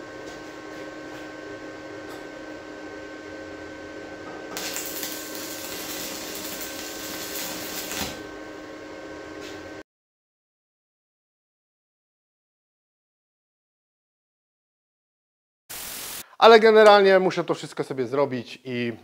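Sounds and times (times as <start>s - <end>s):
machine hum: 0.0s - 9.8s
loud even hiss: 15.7s - 16.3s.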